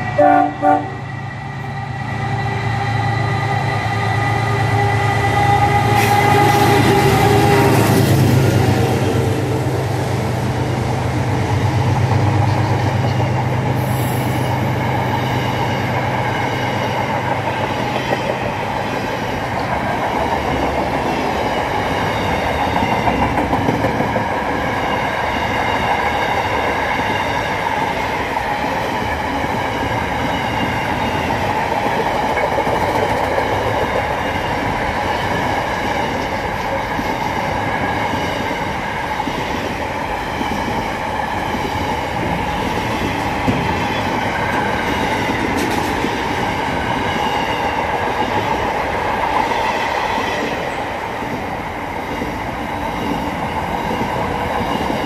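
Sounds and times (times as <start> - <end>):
freight train passing: 0.0 - 55.0
wheels clacking on rails: 5.9 - 55.0.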